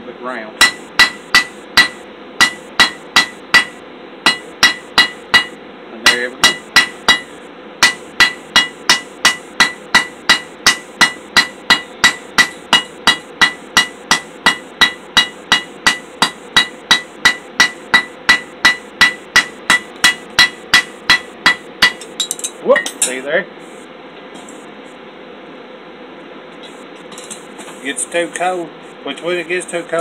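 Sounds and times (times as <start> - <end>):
hammer striking steel on anvil: 0.6 - 23.2.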